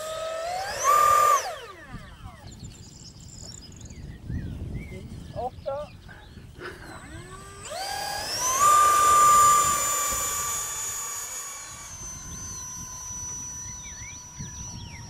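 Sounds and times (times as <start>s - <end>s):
electric ducted fan whine: 0.0s - 15.0s
faint bird chirps: 11.5s - 15.0s.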